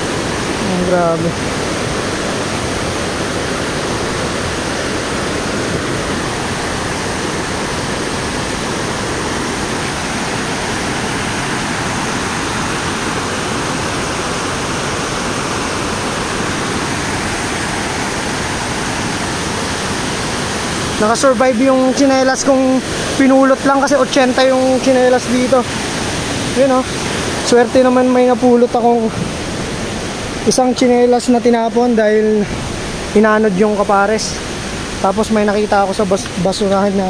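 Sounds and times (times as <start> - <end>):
waterfall roar: 0.0 - 37.0.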